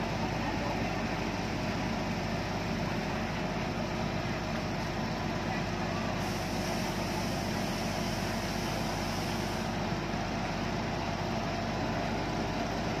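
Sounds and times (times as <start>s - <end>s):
fire engine drone: 0.0s - 13.0s.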